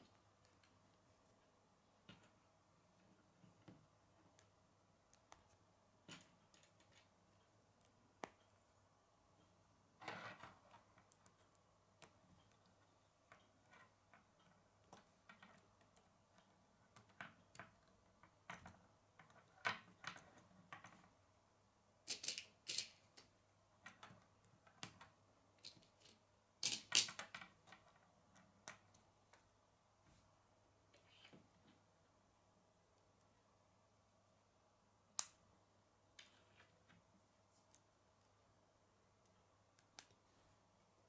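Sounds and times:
plastic pieces clicking together: 0:22.1 - 0:23.3, 0:25.6 - 0:27.5.

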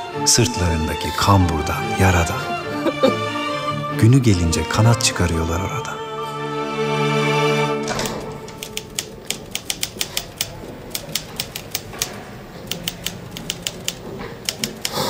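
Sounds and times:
music: 0:00.0 - 0:10.0
typewriter keys clacking: 0:08.0 - 0:15.0.

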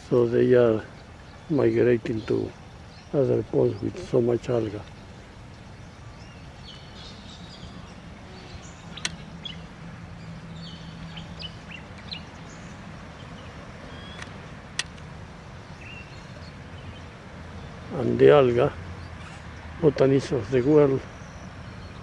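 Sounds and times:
bird chirps and calls: 0:00.0 - 0:14.4, 0:15.5 - 0:22.0
sharp clicks: 0:09.0 - 0:09.3, 0:14.1 - 0:15.1.

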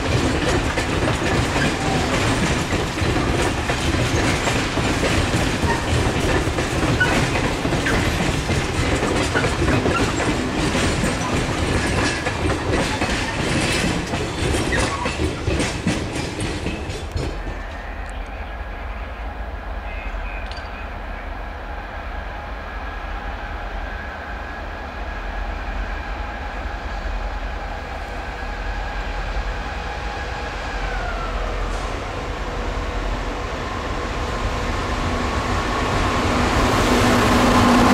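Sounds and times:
freight train wheels clattering: 0:00.0 - 0:18.3.

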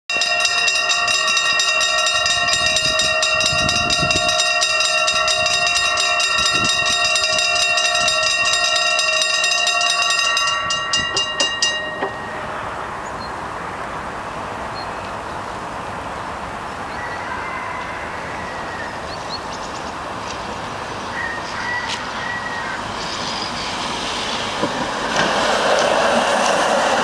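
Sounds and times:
level-crossing bells ringing: 0:00.1 - 0:13.2.

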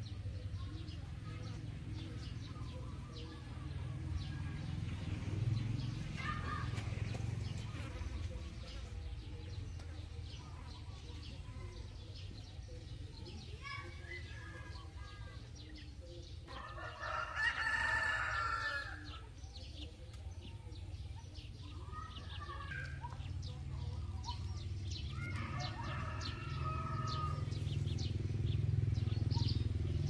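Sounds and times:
rooster crowing: 0:16.6 - 0:19.0, 0:25.1 - 0:27.5.

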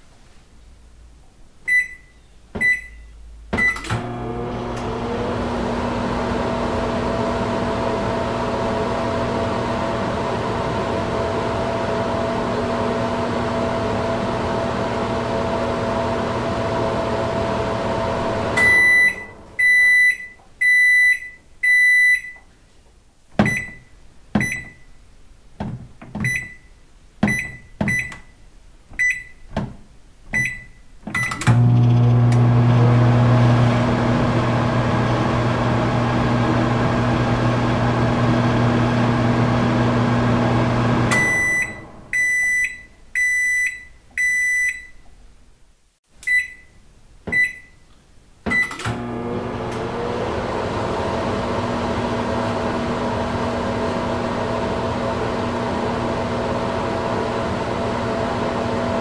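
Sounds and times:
microwave running hum: 0:03.6 - 0:20.8, 0:31.4 - 0:42.9, 0:48.5 - 0:59.0
microwave long high beeps: 0:18.6 - 0:22.4, 0:41.1 - 0:45.0
keypad clicks with short beeps: 0:30.4 - 0:31.4, 0:46.2 - 0:46.7.

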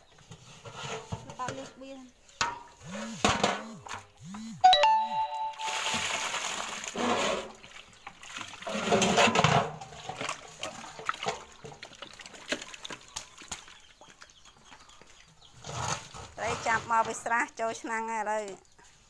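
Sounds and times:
fish thrashing and splashing: 0:05.7 - 0:16.3.

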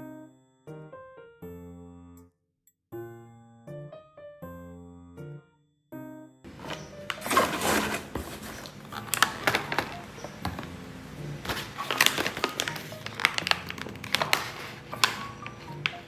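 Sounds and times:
soft background music: 0:03.0 - 0:16.0
plastic packaging crinkling: 0:06.5 - 0:16.0.

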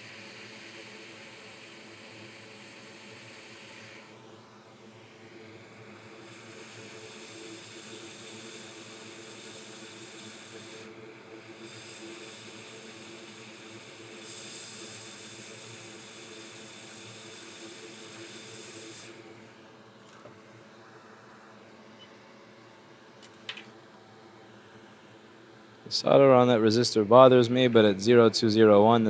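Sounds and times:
hot air blower hissing: 0:00.0 - 0:22.6.

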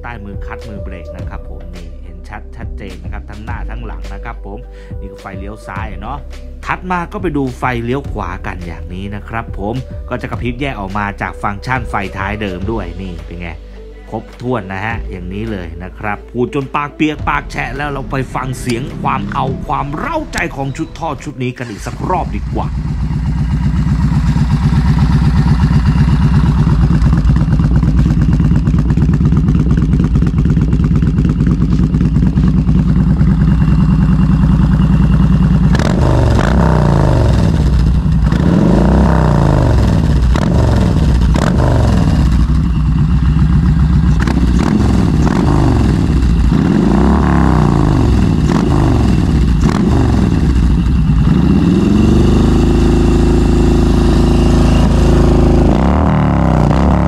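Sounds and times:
motorcycle engine revving: 0:16.8 - 0:57.0.

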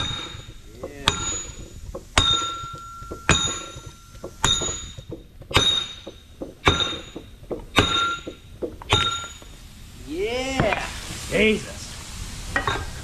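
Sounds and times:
sledgehammer striking steel: 0:00.0 - 0:09.6.

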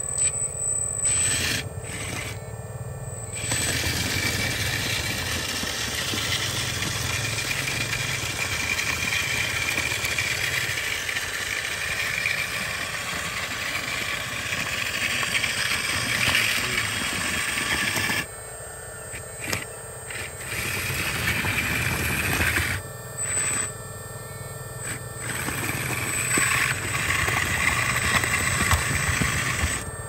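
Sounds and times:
toy excavator motor whine: 0:00.0 - 0:30.0.

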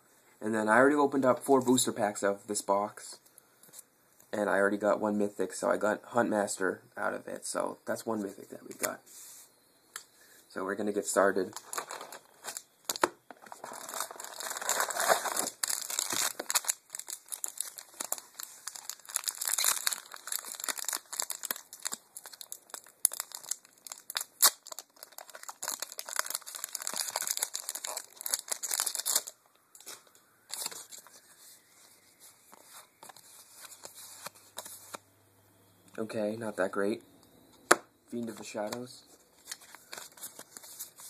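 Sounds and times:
foil wrapper tearing and crinkling: 0:13.5 - 0:29.9
cards being handled: 0:38.2 - 0:41.0.

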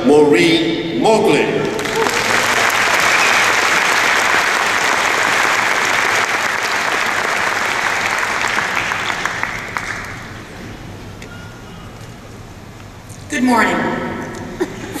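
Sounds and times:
large audience applauding: 0:01.6 - 0:10.4.

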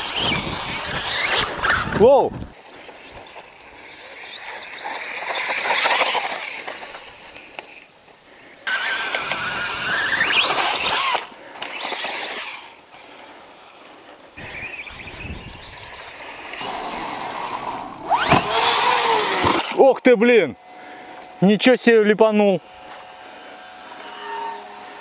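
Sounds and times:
electric motor whining: 0:00.0 - 0:07.9, 0:08.6 - 0:12.9, 0:14.4 - 0:19.8, 0:22.6 - 0:25.0
tyre and drivetrain rush: 0:00.0 - 0:21.5.

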